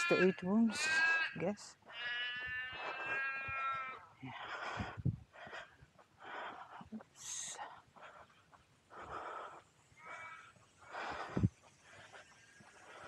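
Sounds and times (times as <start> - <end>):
crows cawing: 0.8 - 4.0, 10.0 - 10.6.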